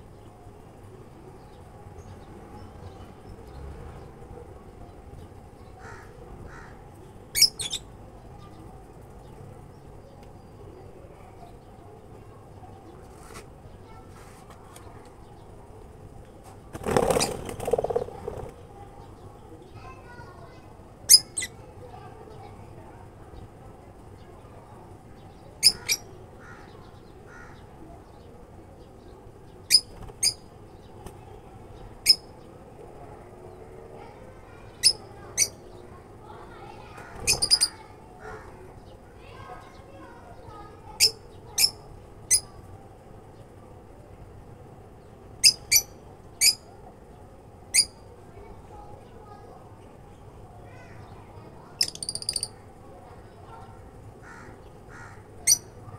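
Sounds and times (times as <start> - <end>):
lovebirds calling: 5.2 - 11.8, 16.8 - 23.5, 25.1 - 32.6, 34.0 - 42.6, 45.0 - 48.1, 49.2 - 52.7, 53.3 - 55.9
lovebirds chirping: 7.3 - 8.7, 25.1 - 27.6, 34.1 - 42.6, 50.8 - 52.6.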